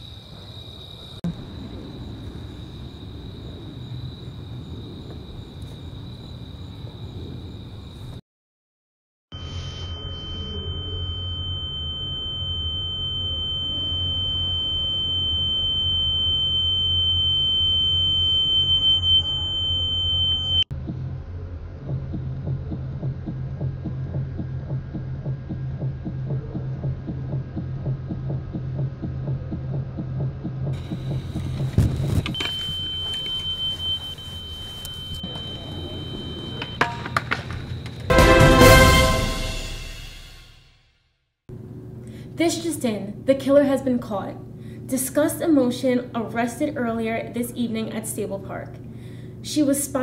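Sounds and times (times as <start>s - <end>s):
high-pitched ringing tone: 9.3s - 20.7s, 32.3s - 37.1s
low pulsing drone: 9.4s - 32.3s
low hum: 9.4s - 40.6s.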